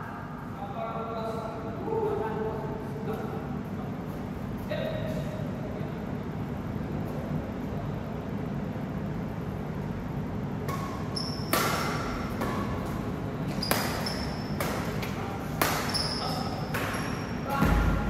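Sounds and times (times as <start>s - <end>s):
steady hall hum: 0.0s - 18.0s
racket hitting shuttlecock: 10.6s - 18.0s
shoe squeaks: 10.7s - 11.6s, 13.4s - 14.6s, 15.8s - 17.4s.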